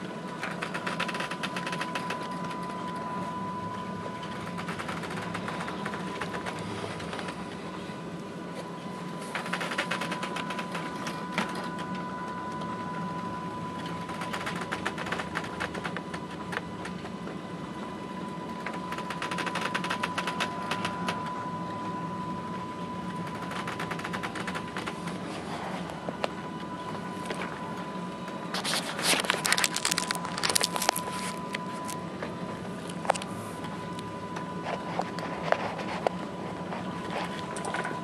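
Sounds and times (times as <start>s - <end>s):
high whine: 0.0s - 38.0s
low machinery hum: 0.0s - 38.0s
mechanical clicking and rattling: 4.4s - 7.4s, 28.8s - 32.0s.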